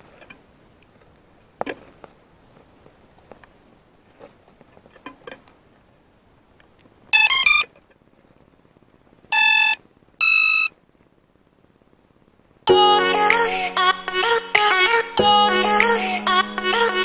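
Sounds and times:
drone electronic beeps: 0:07.2 - 0:07.6, 0:09.3 - 0:10.7.

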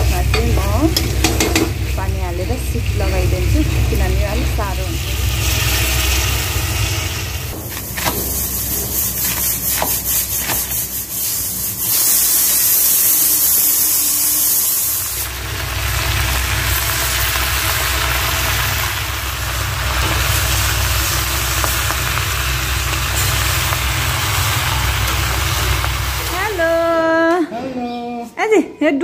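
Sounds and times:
low engine rumble: 0:00.0 - 0:09.0
pressure cooker hissing steam: 0:00.0 - 0:26.9.

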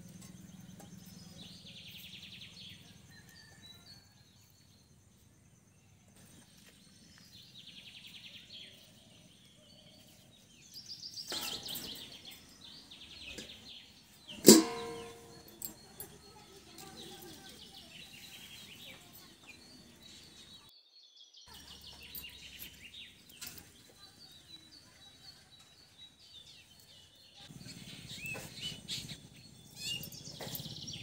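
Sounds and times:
steel plate clattering on pot: 0:11.3 - 0:12.2, 0:14.3 - 0:15.8.

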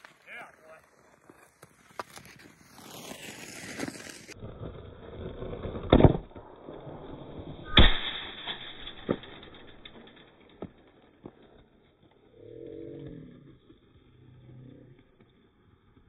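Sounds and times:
skates scraping on ice: 0:00.0 - 0:07.0.

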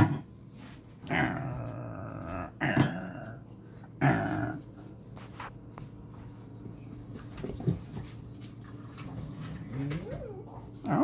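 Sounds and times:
dog growling: 0:01.0 - 0:04.7, 0:09.3 - 0:11.0
dogs scuffling: 0:04.4 - 0:11.0.

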